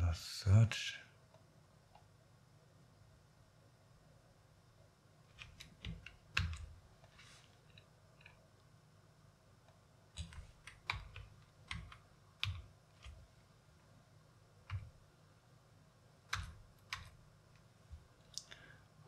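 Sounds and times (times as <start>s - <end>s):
typing on computer keyboard: 5.3s - 6.8s, 10.2s - 13.2s, 14.6s - 15.0s, 16.3s - 17.2s.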